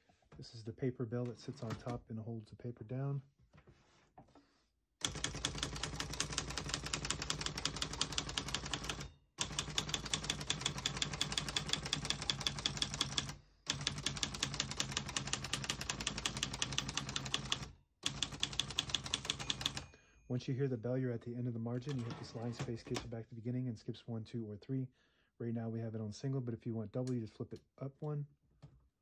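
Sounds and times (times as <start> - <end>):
manual typewriter typing: 1.3 - 2.0, 5.0 - 19.9.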